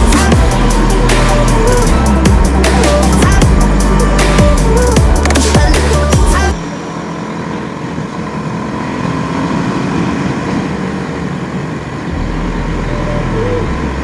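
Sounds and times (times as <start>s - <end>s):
deep low rumble: 0.0s - 6.6s
motorcycle engine cruising: 0.0s - 14.0s
road and wind noise: 0.0s - 14.0s.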